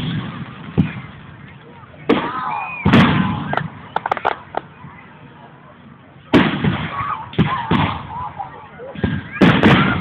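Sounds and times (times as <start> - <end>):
fireworks bangs: 0.0 - 1.4, 2.0 - 4.5, 6.3 - 8.2, 8.9 - 10.0
fireworks crackling: 0.0 - 4.7.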